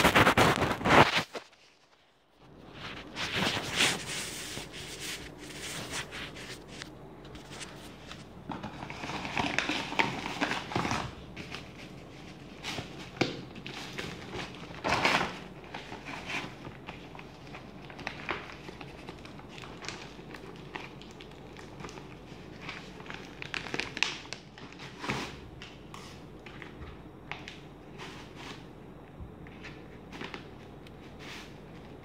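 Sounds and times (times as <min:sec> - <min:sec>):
plastic mailer bag crinkling: 0:00.0 - 0:02.1, 0:07.4 - 0:25.6.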